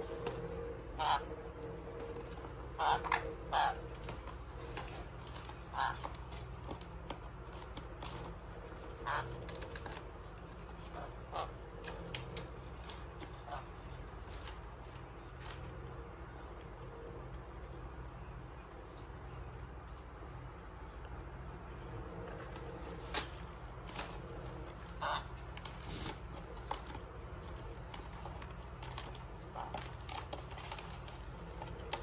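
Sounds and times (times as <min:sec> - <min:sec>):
parrots giving harsh calls: 0:00.9 - 0:01.3, 0:02.7 - 0:04.2, 0:05.5 - 0:06.2, 0:09.0 - 0:09.4, 0:10.8 - 0:11.6, 0:25.0 - 0:25.3.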